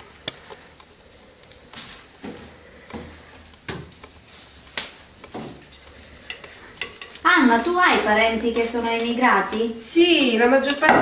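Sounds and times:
hands patting dough: 0.0 - 9.7.

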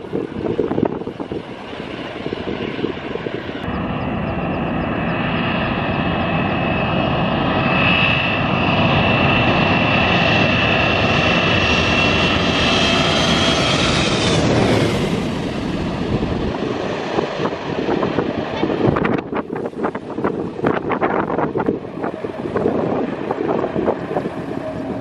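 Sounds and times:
jet engines rumbling and whining: 0.0 - 25.0
wind noise on microphone: 0.0 - 25.0.

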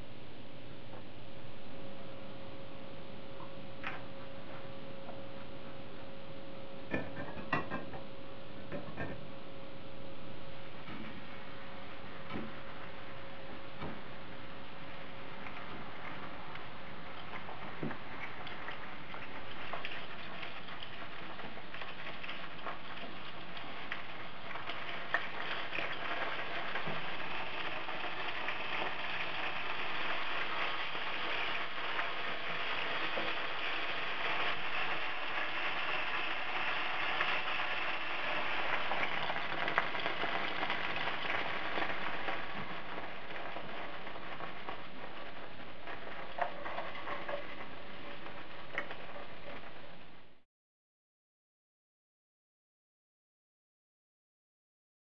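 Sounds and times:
food sizzling in hot oil: 11.2 - 50.2.

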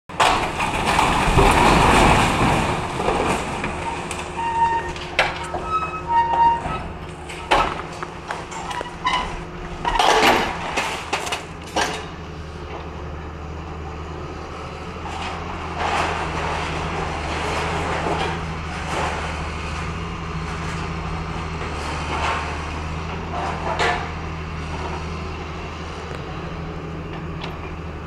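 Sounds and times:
rubble and sheet metal crashing: 0.1 - 12.1, 15.7 - 19.4
sharp bangs and knocks: 0.1 - 12.2
excavator diesel engine: 0.1 - 28.0
high metal squeals: 3.7 - 7.8, 8.5 - 10.6.

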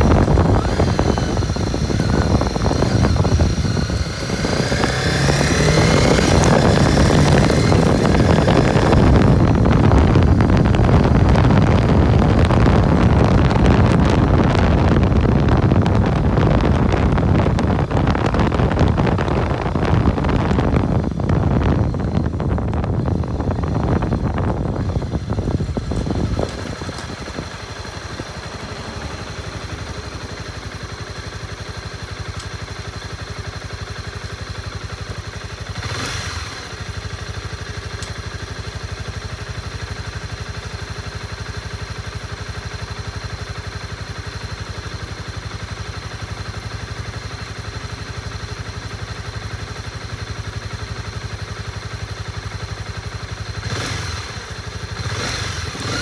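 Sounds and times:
motorcycle engine idling: 0.0 - 56.0.

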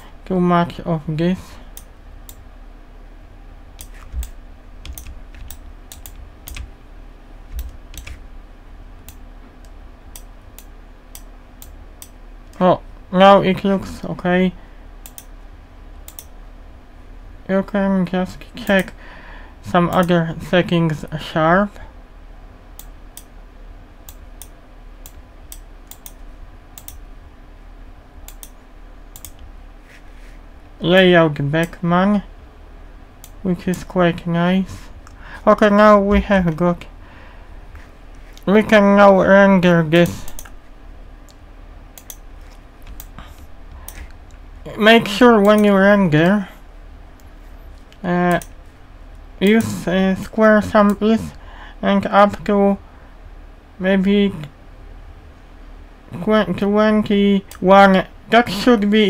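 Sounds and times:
faint steady hum: 0.0 - 59.0
keyboard and mouse clicks: 3.8 - 6.7, 7.5 - 8.2, 15.0 - 15.3, 16.1 - 16.3, 24.1 - 26.2, 26.8 - 27.1, 28.3 - 29.5, 40.0 - 40.6, 42.0 - 44.4, 47.2 - 48.5.

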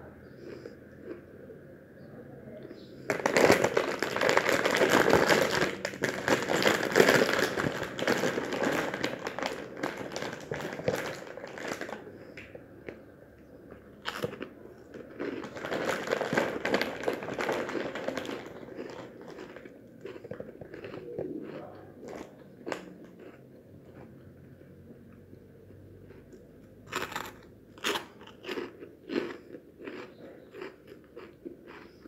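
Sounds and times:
plastic chip bag crinkling: 3.1 - 12.4, 14.0 - 23.4, 26.9 - 32.0.

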